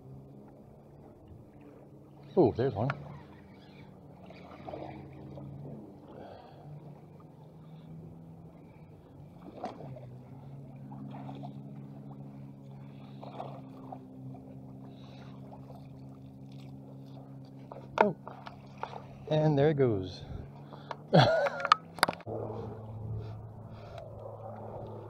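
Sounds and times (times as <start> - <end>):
low hum of held tones: 0.0 - 25.0
splashes and rustles: 2.8 - 7.9, 9.1 - 19.4.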